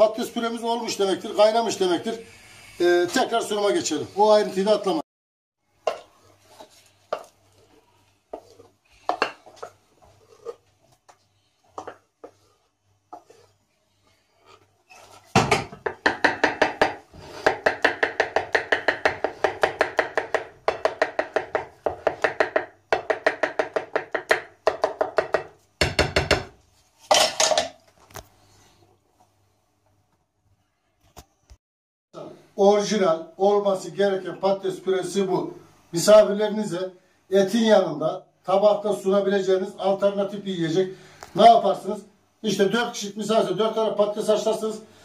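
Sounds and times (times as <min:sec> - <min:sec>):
spatula tapping and scraping plate: 0:05.9 - 0:07.4, 0:08.3 - 0:10.6, 0:11.7 - 0:12.4, 0:13.1 - 0:13.5
wooden spatula scraping metal bowl: 0:05.9 - 0:15.3.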